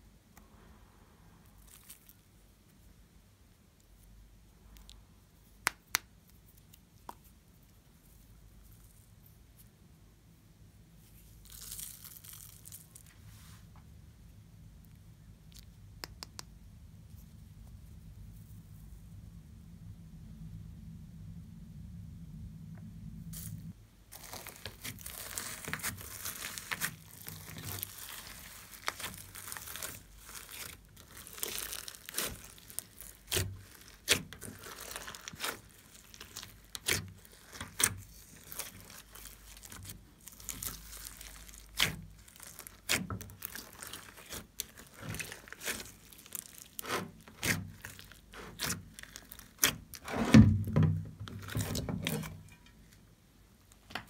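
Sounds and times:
slime crackling and popping: 11.2s - 13.1s, 23.3s - 50.0s
heavy slime squelch: 23.2s - 50.6s.

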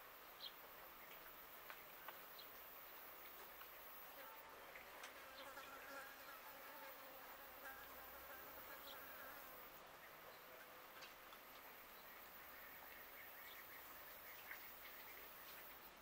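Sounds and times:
flying insect buzzing: 5.1s - 9.7s.

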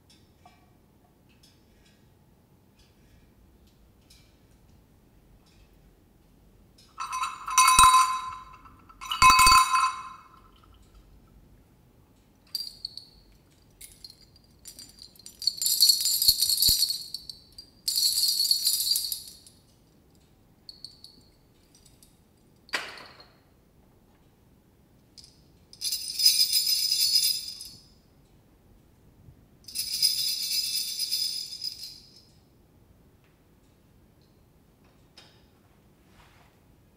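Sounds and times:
small metal bells jingling: 7.0s - 10.8s, 13.8s - 19.6s, 25.2s - 27.8s, 29.7s - 32.3s.

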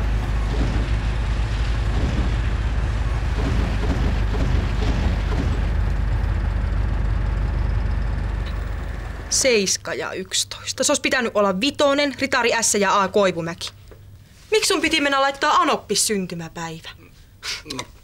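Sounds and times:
vehicle engine running: 0.0s - 9.8s.

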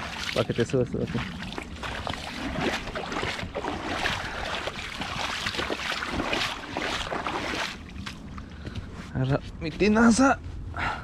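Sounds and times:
splashing in shallow water: 0.0s - 8.5s.

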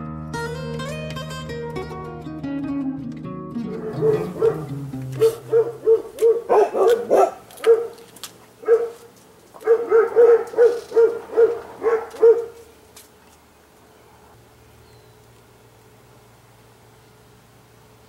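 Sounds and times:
dogs barking: 3.6s - 12.7s.

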